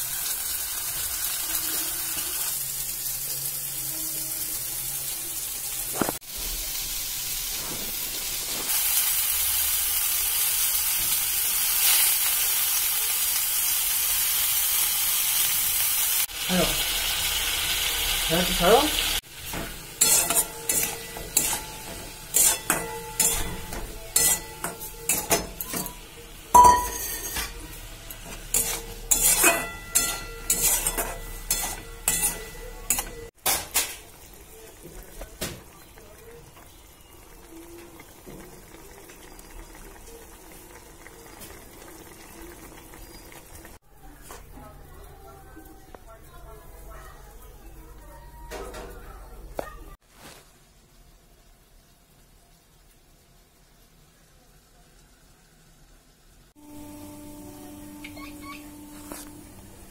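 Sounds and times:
vegetables sizzling in hot oil: 0.0s - 43.9s, 50.0s - 59.9s
spatula scraping a wok: 19.3s - 26.0s, 26.6s - 33.6s.

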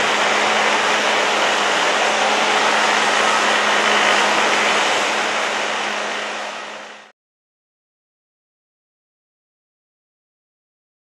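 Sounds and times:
jet airliner taking off: 0.0s - 7.1s.

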